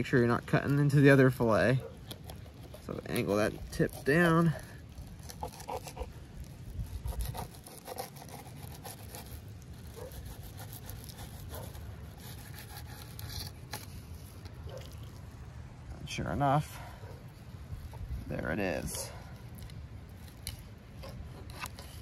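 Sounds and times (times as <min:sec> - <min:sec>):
knife scraping fish bones: 0:01.9 - 0:15.2, 0:19.1 - 0:22.0.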